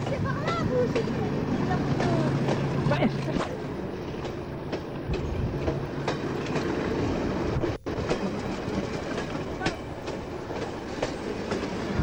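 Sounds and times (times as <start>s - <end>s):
train rumbling past: 0.0s - 12.0s
wheels clicking over rail joints: 0.0s - 12.0s.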